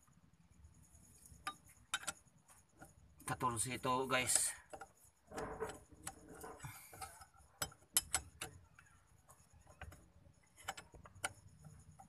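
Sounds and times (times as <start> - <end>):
wrench clicking on metal: 4.2 - 8.9, 9.8 - 12.0.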